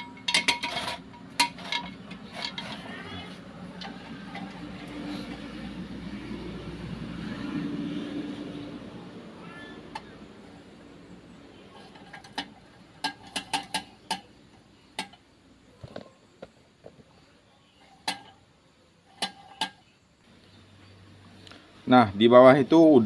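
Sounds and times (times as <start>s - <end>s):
steel tool clinking on metal: 0.0s - 2.9s.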